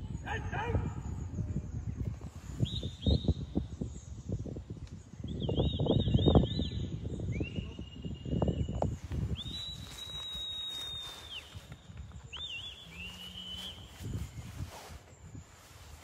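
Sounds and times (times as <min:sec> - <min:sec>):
person whistling commands: 0:09.4 - 0:11.6.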